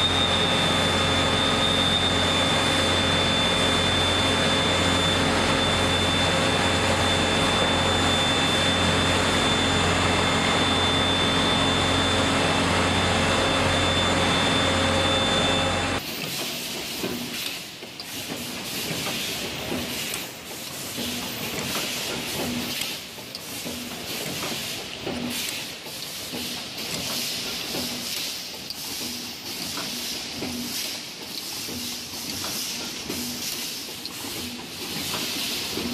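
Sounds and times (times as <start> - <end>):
thin high whine: 0.0 - 16.0
spring machine running loudly: 0.0 - 35.9.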